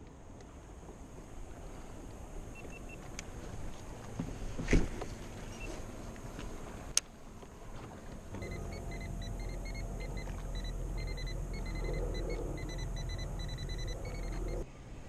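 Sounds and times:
electric motor running: 0:08.4 - 0:14.6.

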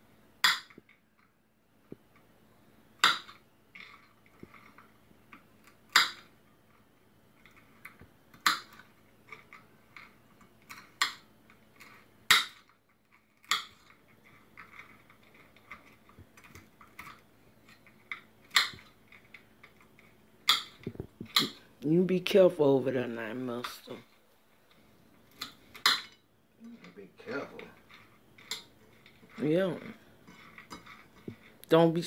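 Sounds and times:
nut shells snapping: 0:03.0 - 0:06.3, 0:07.4 - 0:12.8, 0:13.4 - 0:21.6.

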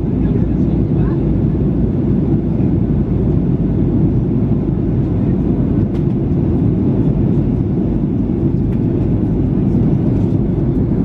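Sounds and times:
airliner cabin roar in flight: 0:00.0 - 0:11.0.

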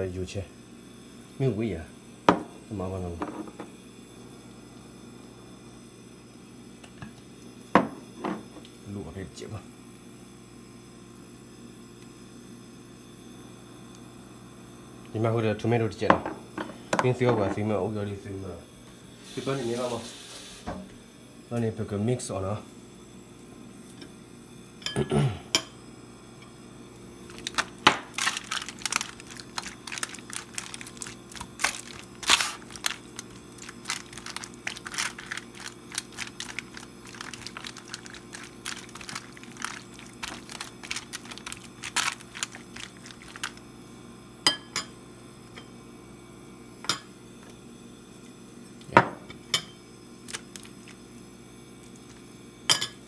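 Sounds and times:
steady low hum: 0:00.0 - 0:53.0
foil crinkling: 0:27.2 - 0:43.6, 0:50.2 - 0:51.0.

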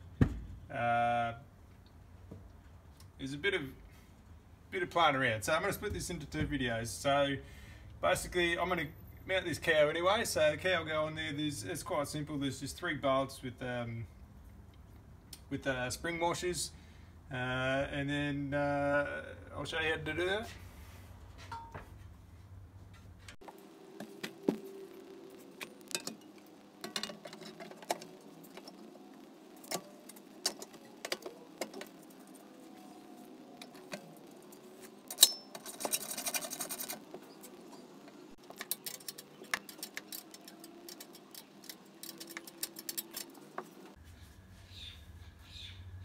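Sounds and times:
bolts and washers clinking: 0:26.8 - 0:28.8, 0:33.6 - 0:37.8
sharp metal clack: 0:35.1 - 0:36.1.

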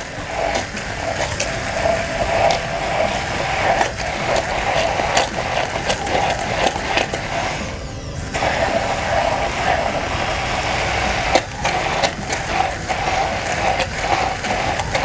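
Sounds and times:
stick blender running: 0:00.0 - 0:15.0.

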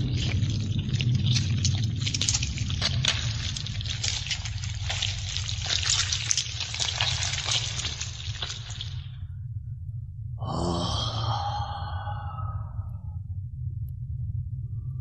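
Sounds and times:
dense crackles: 0:00.0 - 0:09.2
low steady hum: 0:00.0 - 0:15.0.

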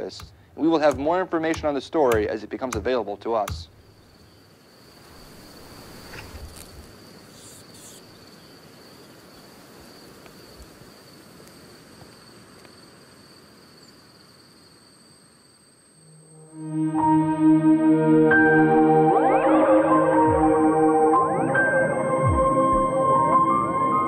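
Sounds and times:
faint background hiss: 0:00.0 - 0:17.4
high-pitched ringing tone: 0:15.8 - 0:24.0
higher ringing tone: 0:15.9 - 0:24.0.

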